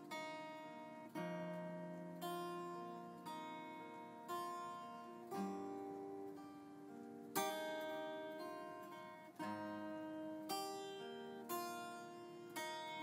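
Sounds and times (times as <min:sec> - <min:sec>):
plucked acoustic guitar chords: 0:00.0 - 0:13.0.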